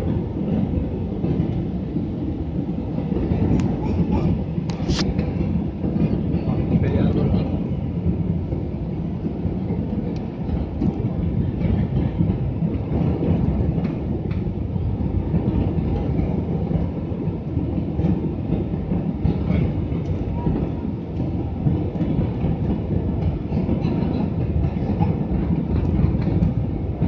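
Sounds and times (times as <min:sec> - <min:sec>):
jet engine rumble in cabin: 0:01.8 - 0:08.5.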